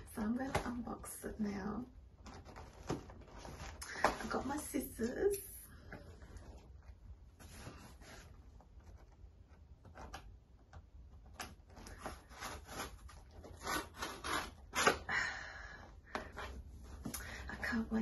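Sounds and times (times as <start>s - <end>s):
scissors cutting cardboard: 11.4s - 15.1s.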